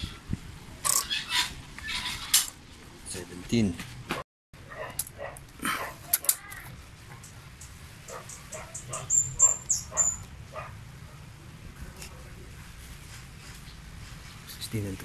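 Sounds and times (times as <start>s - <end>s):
dog barking: 4.6s - 6.3s, 8.1s - 11.2s
high chirps: 7.2s - 10.3s.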